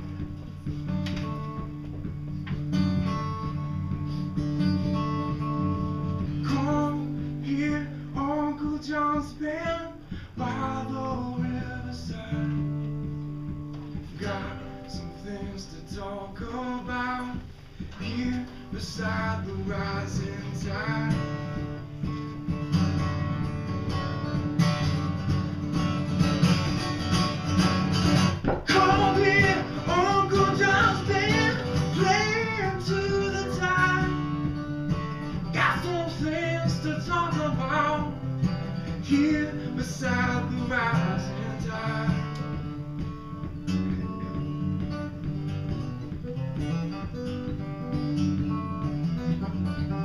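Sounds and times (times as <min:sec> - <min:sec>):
acoustic guitar strummed: 0:00.0 - 0:50.0
person singing: 0:28.6 - 0:34.4.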